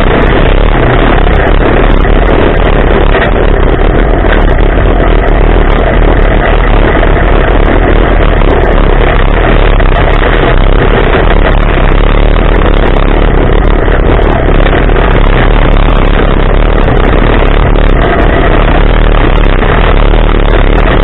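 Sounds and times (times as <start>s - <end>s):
vehicle engine running hard: 0.0s - 21.0s
wind: 0.0s - 21.0s.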